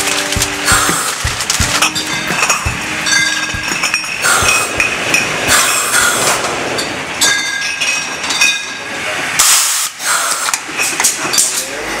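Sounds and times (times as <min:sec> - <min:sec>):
mechanical knocks: 0:00.0 - 0:07.0
glass bottles clinking: 0:00.0 - 0:08.9, 0:10.7 - 0:11.7.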